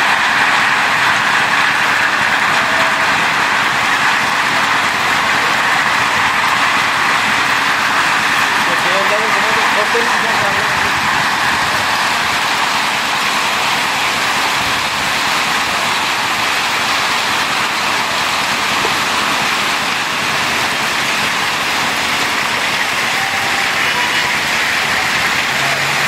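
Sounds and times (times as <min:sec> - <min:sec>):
heavy rain pouring: 0:00.0 - 0:26.0.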